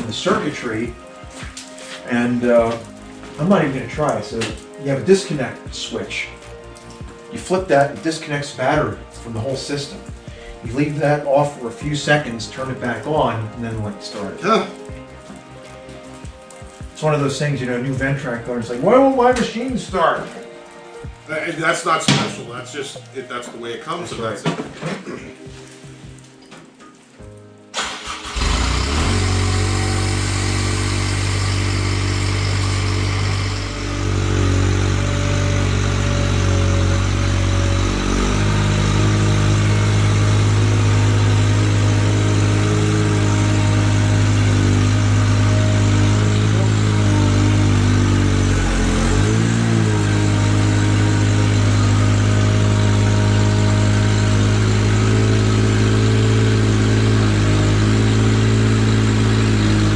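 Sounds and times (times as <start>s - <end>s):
tractor engine running: 27.8s - 59.9s.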